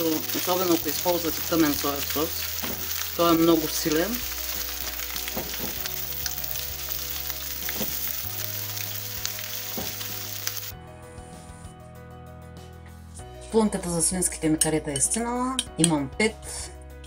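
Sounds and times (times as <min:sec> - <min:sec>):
onion sizzling in a pan: 0:00.0 - 0:10.7
soft background music: 0:00.0 - 0:17.0.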